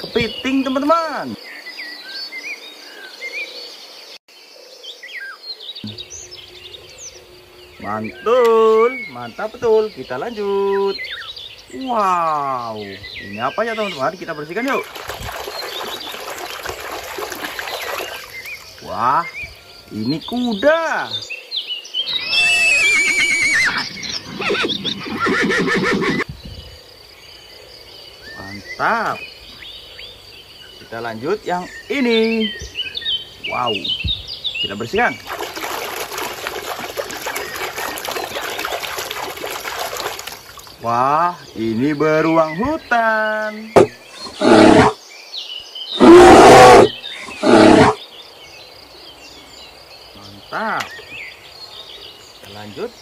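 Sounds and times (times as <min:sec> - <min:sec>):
horse whinnying: 0:22.1 - 0:26.2, 0:43.8 - 0:45.0, 0:46.0 - 0:48.0
bear roaring: 0:43.8 - 0:45.0, 0:46.0 - 0:48.0.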